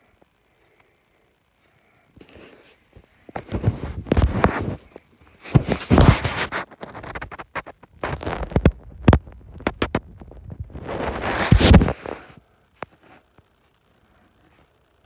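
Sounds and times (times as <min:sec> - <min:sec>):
handling rustles and scrapes: 0:02.2 - 0:08.8, 0:09.6 - 0:13.4.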